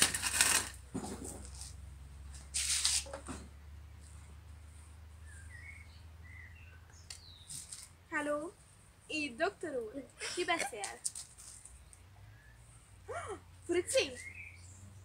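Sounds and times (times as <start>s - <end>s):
brief rustle: 2.4s - 3.4s, 7.1s - 7.9s, 10.6s - 12.0s
faint bird chirps: 5.2s - 7.6s, 11.8s - 12.9s, 14.0s - 15.0s.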